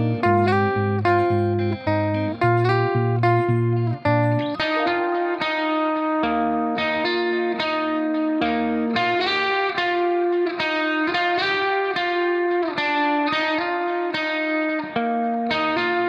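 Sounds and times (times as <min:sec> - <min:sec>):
plucked guitar melody: 0:00.0 - 0:16.0.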